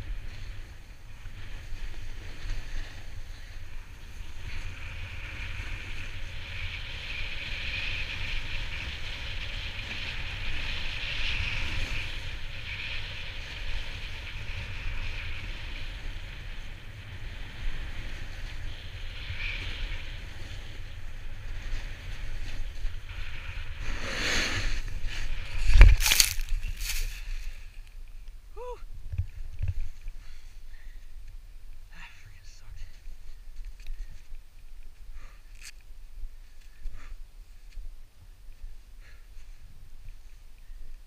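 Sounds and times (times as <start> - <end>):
wind buffeting microphone: 0.0 - 27.6
snowboard edge scraping: 0.0 - 28.0
snowboard sliding over snow: 0.0 - 41.0.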